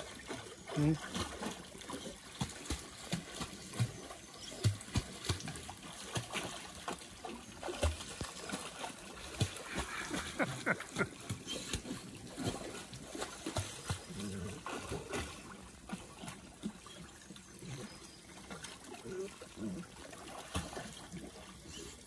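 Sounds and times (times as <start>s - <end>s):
dog splashing in water: 0.0s - 17.1s, 18.3s - 21.9s.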